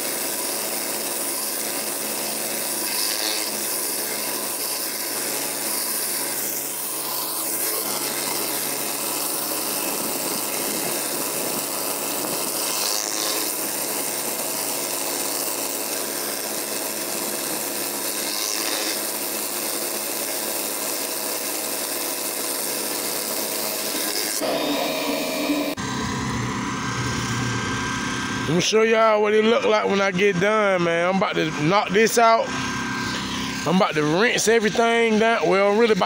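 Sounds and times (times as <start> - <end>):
high-pressure water hissing: 0.0 - 25.8
steady hum: 24.0 - 36.0.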